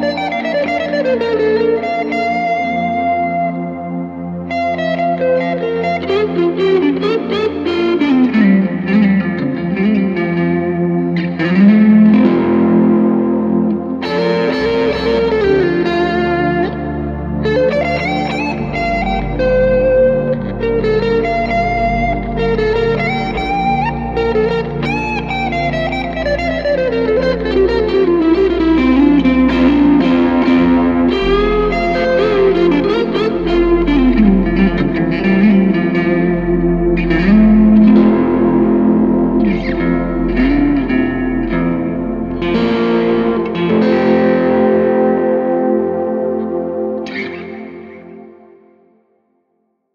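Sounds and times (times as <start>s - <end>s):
electric guitar lead: 0.0s - 49.2s.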